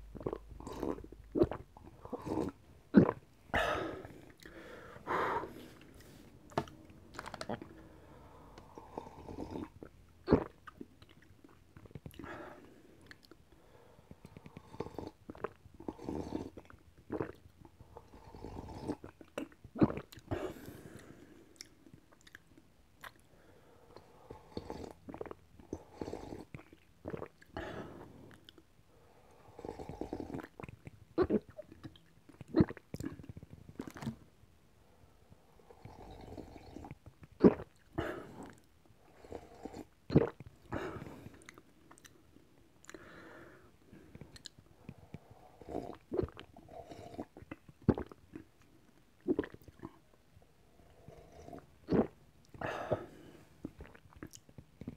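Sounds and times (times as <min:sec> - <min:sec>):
person gulping broth: 0:00.0 - 0:13.5, 0:14.2 - 0:23.3, 0:24.0 - 0:28.7, 0:29.5 - 0:34.3, 0:35.7 - 0:50.2, 0:50.9 - 0:54.9
wet mouth clicks: 0:21.6 - 0:23.3.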